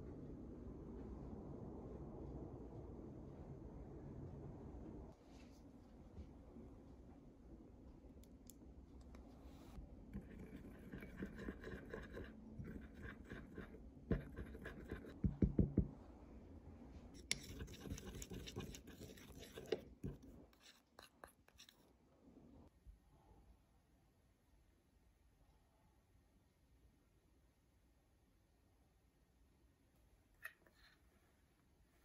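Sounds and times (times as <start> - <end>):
spoon stirring in a glass bowl: 10.1 - 15.9, 17.2 - 21.9.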